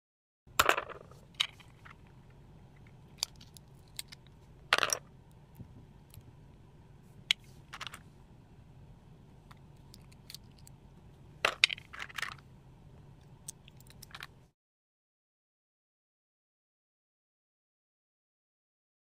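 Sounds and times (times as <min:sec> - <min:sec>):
low steady hum: 0:00.5 - 0:14.5.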